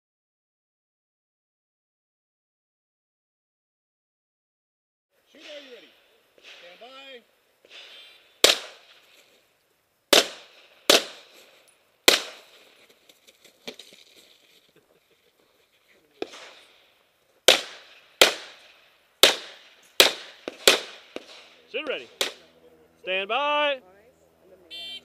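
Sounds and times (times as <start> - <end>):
handgun shots: 7.8 - 8.9, 10.1 - 11.3, 12.1 - 12.6, 19.2 - 22.4.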